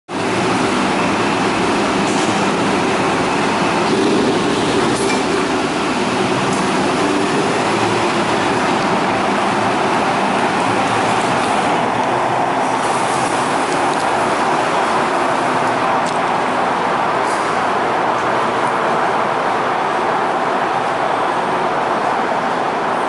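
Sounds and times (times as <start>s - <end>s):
ship machinery drone: 0.1s - 23.0s.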